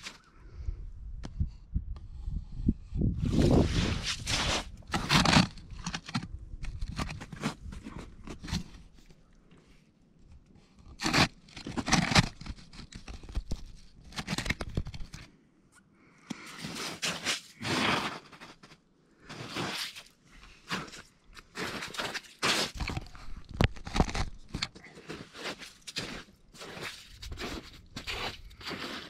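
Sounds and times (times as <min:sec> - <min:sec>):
footsteps crunching on ice: 0:20.7 - 0:29.0.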